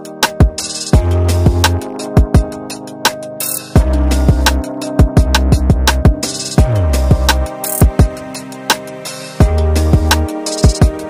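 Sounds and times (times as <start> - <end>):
dance music with heavy drums: 0.2 - 11.0
deep bass: 1.0 - 1.8, 3.8 - 7.5.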